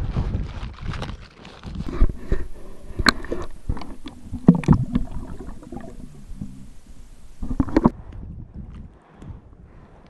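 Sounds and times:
water sloshing and splashing: 0:01.3 - 0:08.0.

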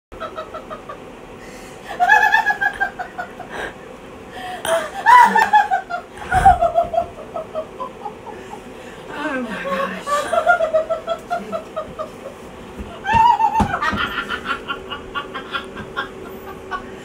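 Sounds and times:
woman giggling: 0:04.7 - 0:08.6, 0:09.2 - 0:12.4.

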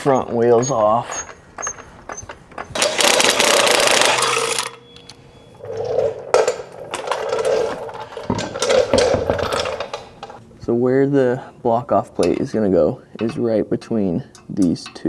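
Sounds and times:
impact wrench hammering: 0:01.1 - 0:05.0.

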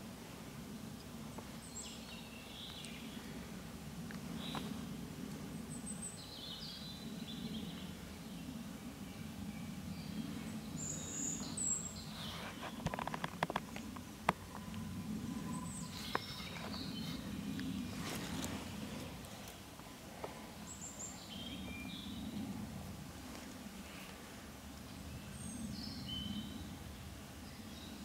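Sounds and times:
low background hum: 0:00.0 - 0:28.0
birds calling: 0:00.8 - 0:28.0
clicks and rustles: 0:12.2 - 0:14.8.

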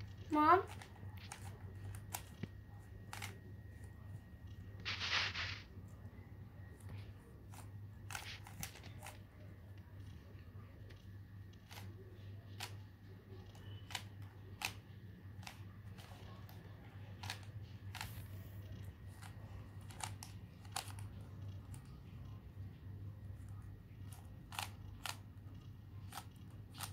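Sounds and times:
steady low hum: 0:00.0 - 0:26.9
puzzle cube clicking: 0:17.2 - 0:22.3, 0:26.0 - 0:26.9.

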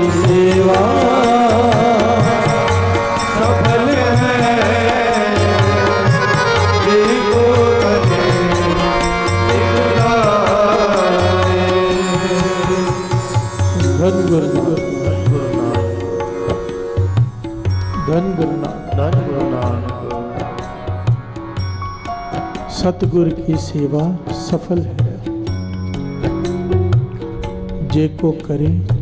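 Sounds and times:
devotional singing: 0:00.0 - 0:17.0
held accompaniment: 0:00.0 - 0:29.0
tabla rhythm: 0:00.0 - 0:29.0.

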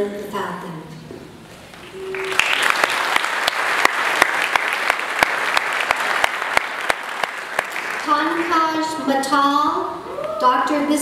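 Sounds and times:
audience applauding: 0:01.8 - 0:08.7.

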